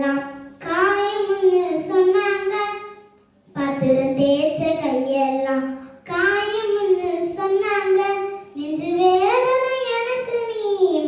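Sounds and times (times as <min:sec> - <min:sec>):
girl singing unaccompanied: 0:03.5 - 0:11.0.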